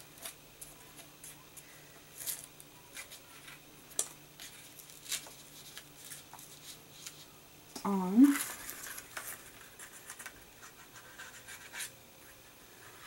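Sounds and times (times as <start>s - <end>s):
paper rustling: 8.2s - 13.0s.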